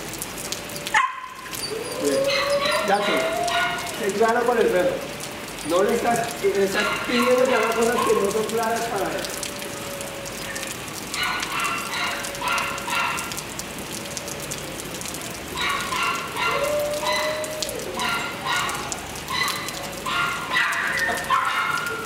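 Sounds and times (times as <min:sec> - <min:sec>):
dog barking: 0:00.9 - 0:01.4, 0:02.0 - 0:04.0, 0:06.7 - 0:08.7, 0:10.4 - 0:13.4, 0:15.6 - 0:22.0.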